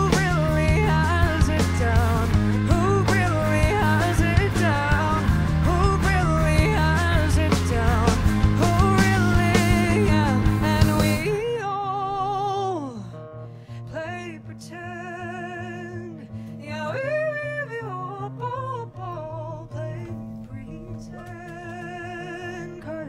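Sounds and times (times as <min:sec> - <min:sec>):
drums: 0:00.0 - 0:11.5
bass guitar: 0:00.0 - 0:13.2, 0:17.6 - 0:23.0
electric guitar lead with slides: 0:00.0 - 0:13.7, 0:15.5 - 0:23.0
strummed acoustic guitar: 0:00.0 - 0:23.0.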